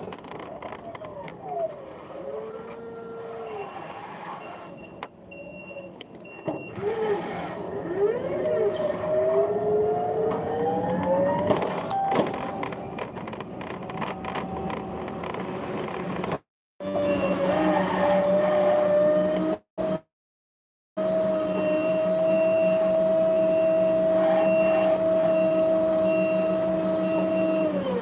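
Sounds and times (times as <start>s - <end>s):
electric forklift motor whining: 0.5s - 13.1s, 21.0s - 28.0s.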